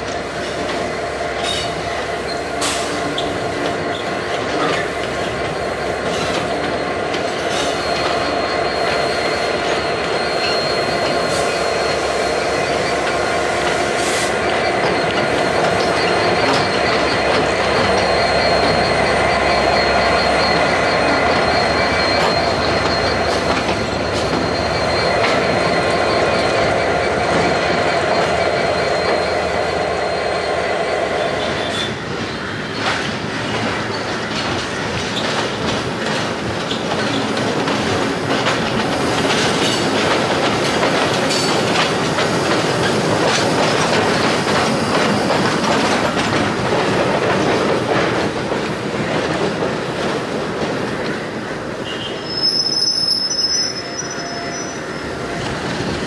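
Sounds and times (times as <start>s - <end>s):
diesel locomotive engine: 0.0s - 56.0s
wheels clicking over rail joints: 32.2s - 51.3s.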